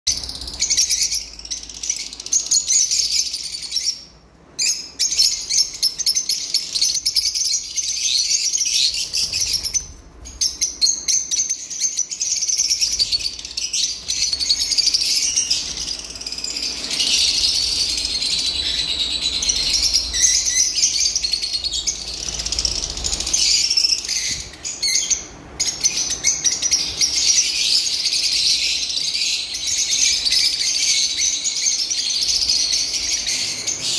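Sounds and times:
lovebirds chirping: 0:00.1 - 0:33.9.

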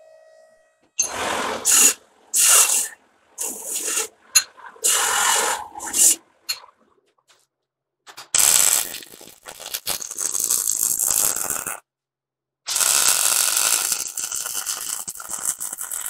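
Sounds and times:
welding arc crackling and sizzling: 0:08.2 - 0:11.8, 0:12.7 - 0:16.0.

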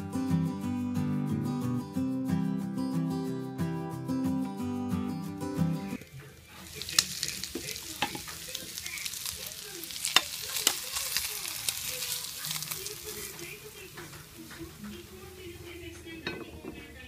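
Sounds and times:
meat sizzling in a frying pan: 0:06.0 - 0:16.0
spatula scraping a pan: 0:06.5 - 0:13.6.

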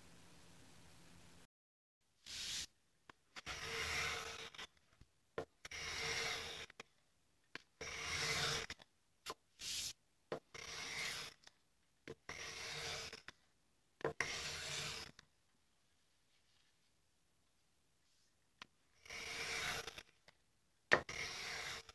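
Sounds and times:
hand plane shaving wood: 0:03.4 - 0:04.6, 0:05.7 - 0:06.6, 0:07.8 - 0:08.7, 0:10.6 - 0:11.3, 0:12.3 - 0:13.2, 0:14.2 - 0:15.1, 0:19.0 - 0:20.0, 0:21.0 - 0:21.9.

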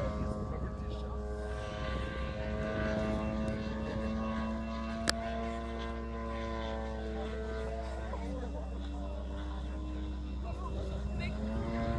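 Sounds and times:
model airplane motor droning: 0:00.0 - 0:11.9.

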